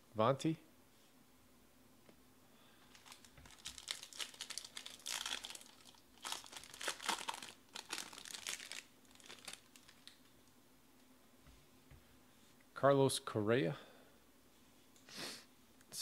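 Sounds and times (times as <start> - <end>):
foil wrapper torn and crinkled: 2.9 - 10.2.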